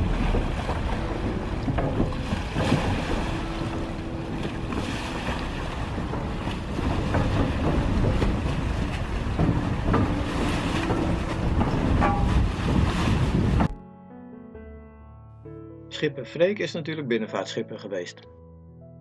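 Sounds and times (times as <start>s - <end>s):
ferry engine running: 0.0s - 13.7s
propeller churning water: 0.0s - 13.8s
wind buffeting microphone: 0.0s - 13.8s.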